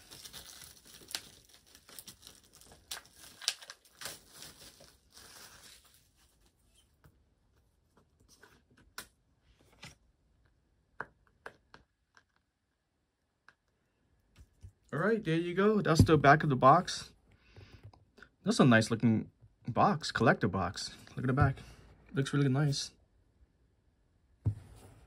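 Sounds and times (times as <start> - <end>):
packaging being torn and crinkled: 0.0 - 6.4.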